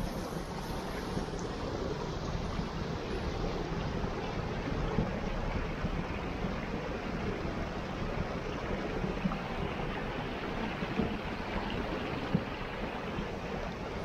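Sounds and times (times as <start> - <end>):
stream rushing over rocks: 0.0 - 14.0.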